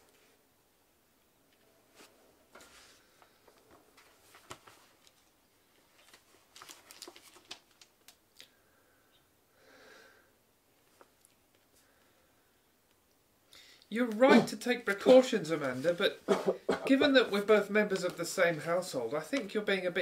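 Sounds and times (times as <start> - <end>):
magazine rustling and crinkling: 1.9 - 8.4, 16.9 - 19.6.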